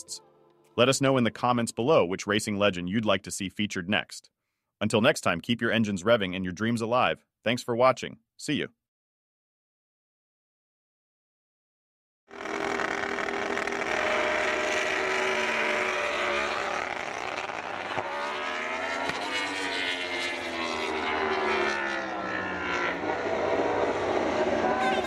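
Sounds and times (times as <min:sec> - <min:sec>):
racing motorcycle engine revving: 0:12.3 - 0:25.0.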